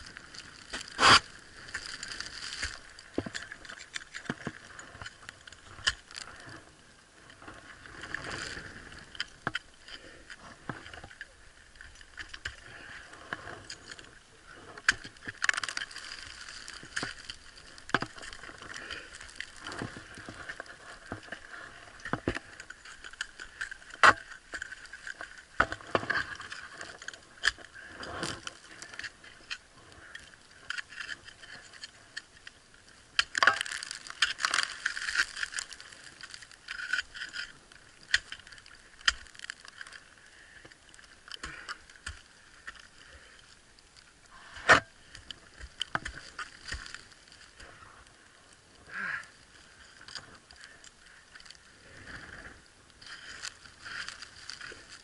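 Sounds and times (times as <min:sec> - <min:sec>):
ice axe striking ice: 0:00.4 - 0:06.3, 0:14.8 - 0:21.4, 0:22.0 - 0:28.4, 0:33.1 - 0:40.0
metal climbing gear clinking: 0:00.4 - 0:06.6, 0:10.7 - 0:32.4, 0:33.2 - 0:40.0.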